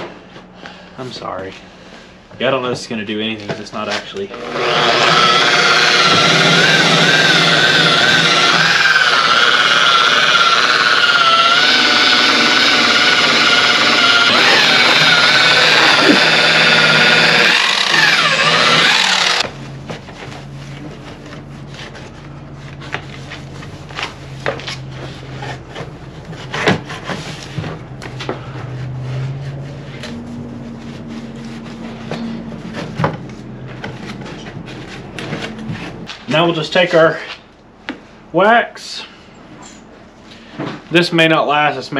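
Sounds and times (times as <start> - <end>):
electric polisher motor whine: 4.3 - 19.5
cloth rubbing a panel: 28.6 - 32.9.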